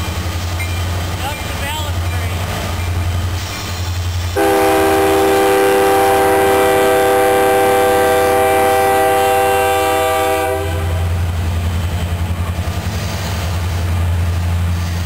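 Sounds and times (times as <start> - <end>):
freight train rumbling past: 0.0 - 15.0
locomotive air horn chord: 4.4 - 11.2.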